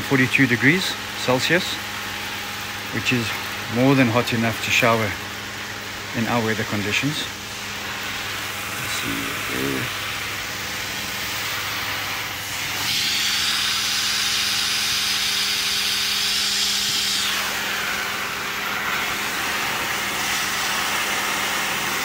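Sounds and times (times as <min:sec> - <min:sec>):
steady low hum: 0:00.0 - 0:22.0
water heater hissing: 0:00.0 - 0:22.0.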